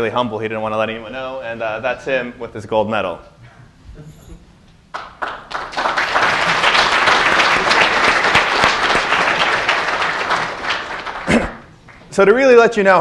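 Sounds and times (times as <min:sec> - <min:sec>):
audience applauding: 0:04.9 - 0:12.1.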